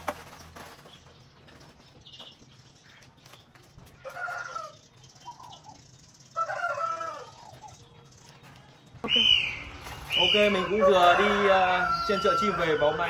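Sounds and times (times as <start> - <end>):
chicken calling: 6.4 - 8.0, 9.0 - 13.0.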